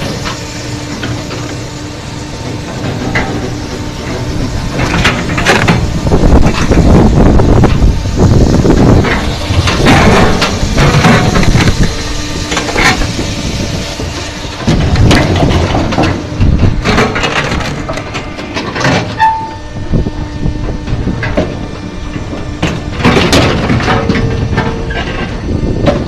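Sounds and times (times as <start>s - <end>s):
firewood processor running: 0.0s - 26.0s
brief squeal: 19.2s - 19.7s.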